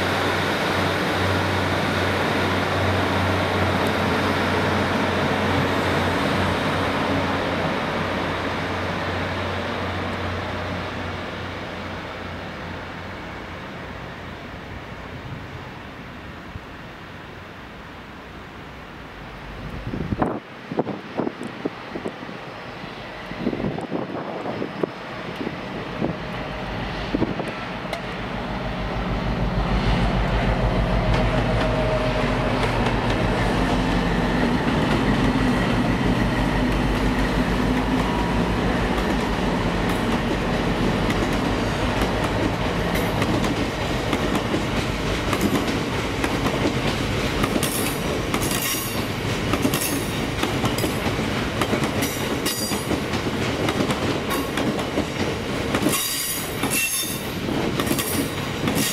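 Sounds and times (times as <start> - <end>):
diesel train engine passing: 0.0 - 58.9
train wheels clicking on rails: 19.6 - 29.0, 29.7 - 58.9
wheels squealing on rails: 44.8 - 53.3, 54.2 - 58.9.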